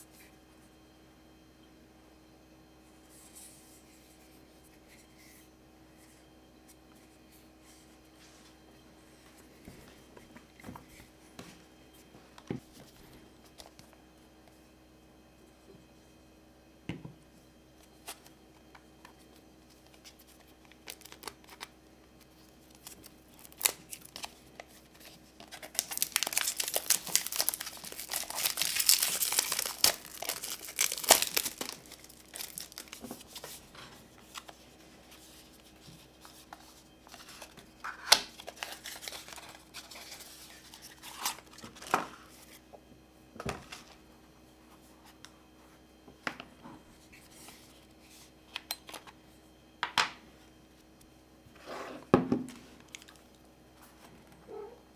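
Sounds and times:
plastic wrap crinkling and tearing: 20.0 - 21.7, 22.7 - 33.6, 37.1 - 41.9.

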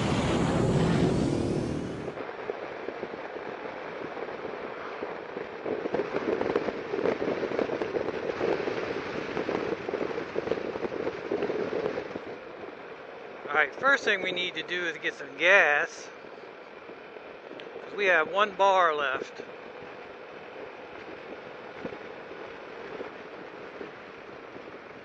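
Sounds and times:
loud intro sound: 0.0 - 2.2
scooter riding: 0.0 - 14.7, 15.6 - 18.0, 19.2 - 25.0
wind buffeting microphone: 0.0 - 25.0.

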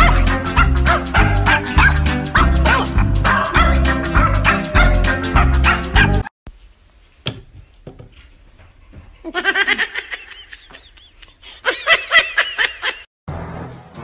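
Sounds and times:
high-pitched giggling: 9.2 - 13.1.

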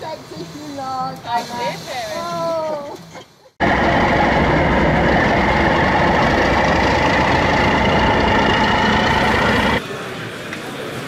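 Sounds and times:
diesel locomotive engine running: 3.6 - 9.8
high whine: 3.6 - 9.8.

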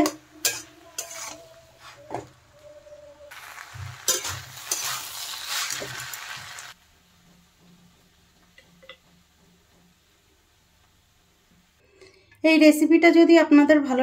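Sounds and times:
spatula scraping metal pan: 0.0 - 2.0, 3.3 - 6.7
food sizzling: 0.0 - 11.8.

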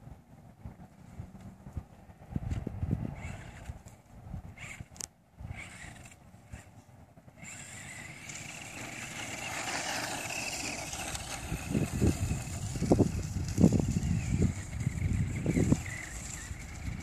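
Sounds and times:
toy truck motor whining: 3.2 - 3.9, 4.5 - 17.0.

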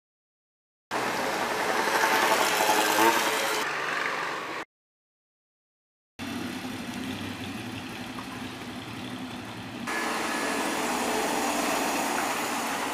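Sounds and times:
road train engine driving past: 1.0 - 4.6, 6.2 - 12.9.

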